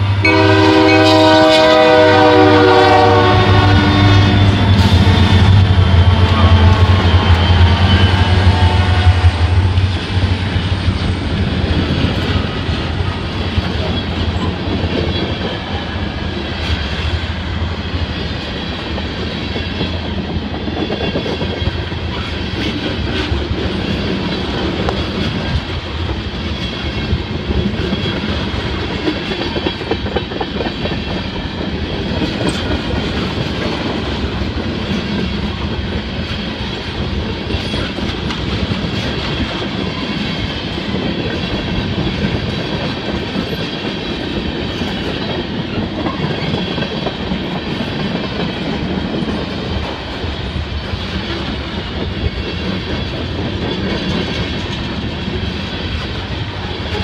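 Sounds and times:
diesel locomotive low drone: 0:00.0 - 0:57.0
train rumble: 0:00.0 - 0:57.0
train wheels clacking over rail joints: 0:04.1 - 0:57.0.

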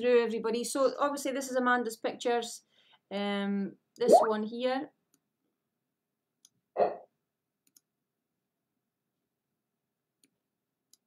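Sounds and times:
computer mouse clicks: 0:07.6 - 0:07.9.

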